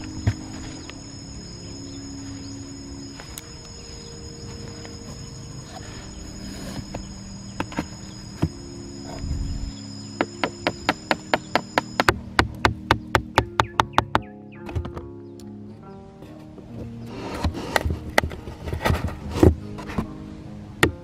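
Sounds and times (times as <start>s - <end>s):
insect chirring: 0.0s - 12.3s
scattered knocks: 10.2s - 15.0s.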